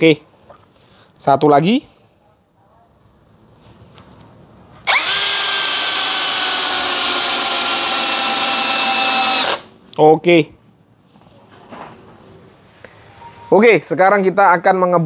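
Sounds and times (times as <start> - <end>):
cordless drill driving screw: 4.8 - 9.7.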